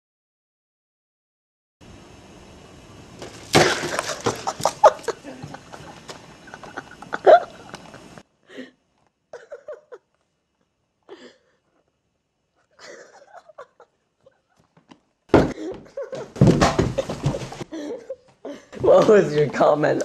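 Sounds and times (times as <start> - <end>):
steady hiss: 1.8 - 8.7
loud crack: 3.2 - 5.2
sharp knocks and clatter: 16.3 - 17.6
hard hits: 16.3 - 17.7.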